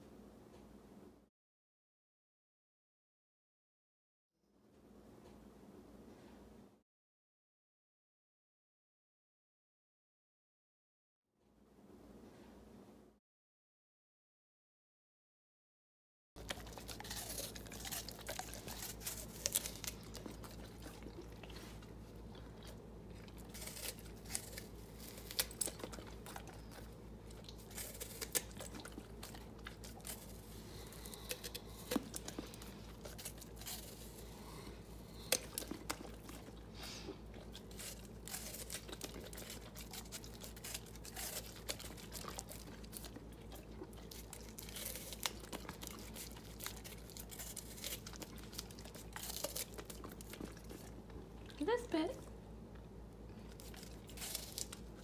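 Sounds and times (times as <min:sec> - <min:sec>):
dog crunching an apple: 0:16.4 - 0:55.0.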